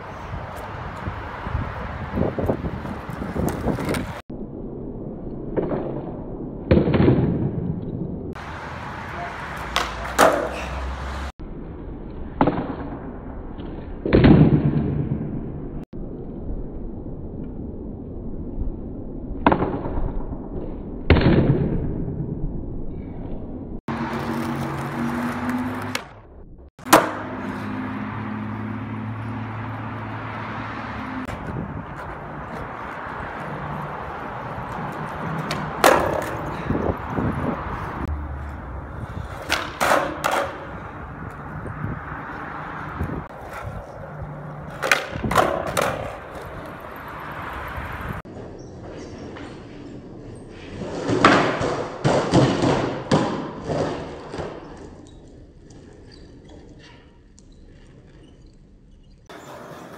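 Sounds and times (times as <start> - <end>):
skateboard wheels rolling on pavement: 0.0 - 4.4, 7.4 - 14.0, 23.8 - 59.9
skateboard smacking down: 3.1 - 4.2, 9.6 - 10.7, 34.7 - 36.5, 39.3 - 40.7, 44.6 - 47.1, 50.8 - 55.0
skateboard clacking on concrete: 9.2 - 10.8, 34.6 - 36.8, 39.2 - 41.4, 43.3 - 47.3, 59.3 - 59.9.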